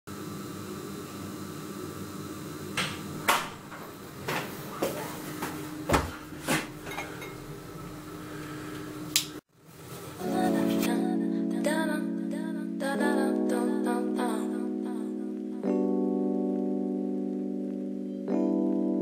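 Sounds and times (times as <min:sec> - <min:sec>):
steady hum: 0:00.1 - 0:09.4
music: 0:10.2 - 0:19.0.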